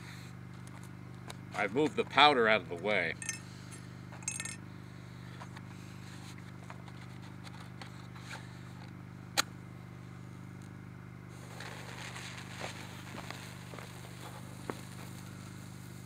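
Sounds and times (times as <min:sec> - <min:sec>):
fuse hissing and crackling: 0:11.3 - 0:16.0
match striking: 0:11.4 - 0:15.6.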